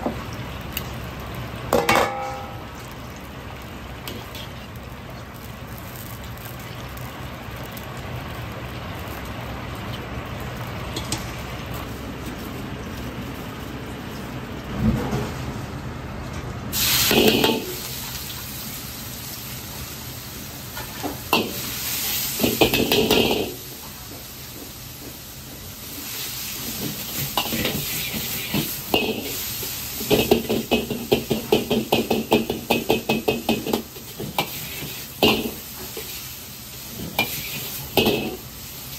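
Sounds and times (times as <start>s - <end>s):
sizzle and clatter: 0.0s - 15.5s, 16.4s - 38.9s
oil bubbling in a wok: 0.0s - 15.6s, 16.7s - 38.9s
ladle scraping a metal wok: 33.7s - 36.2s, 36.9s - 38.4s.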